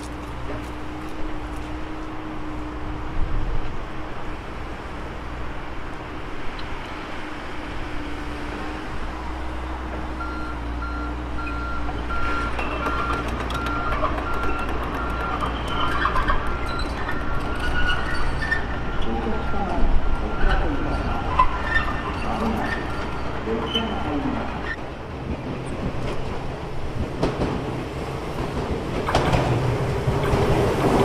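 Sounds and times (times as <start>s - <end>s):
truck engine rumble: 0.0s - 31.0s
truck warning beeper: 10.2s - 16.0s, 16.6s - 22.2s.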